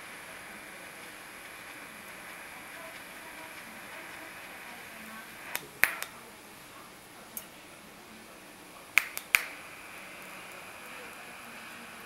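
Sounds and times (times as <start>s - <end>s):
welding arc hissing: 0.0s - 6.6s, 8.8s - 12.0s
sharp clicks: 5.4s - 6.2s, 9.0s - 9.6s.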